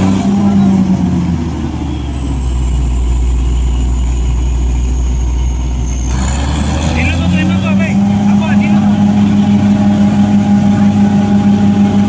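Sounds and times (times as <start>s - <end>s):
drilling rig engine humming: 0.0s - 12.0s
faint high whine: 0.1s - 6.1s.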